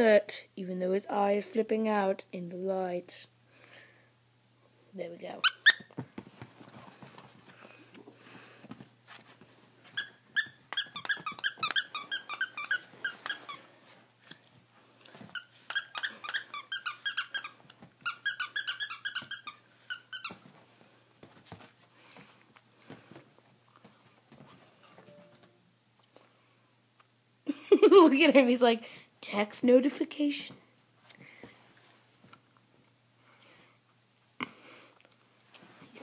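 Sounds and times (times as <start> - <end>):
dog toy squeaking: 5.4 - 5.9, 10.0 - 13.6, 15.4 - 20.4.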